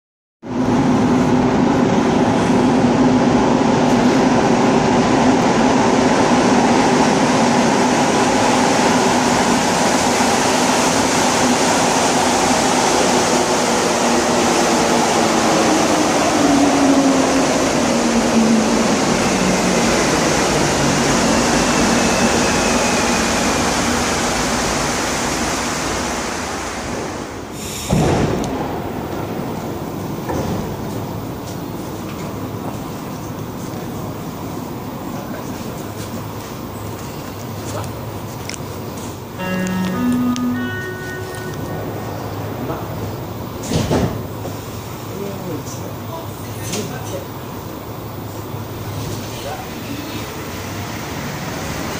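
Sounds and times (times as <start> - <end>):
subway train pulling in: 0.4 - 51.9.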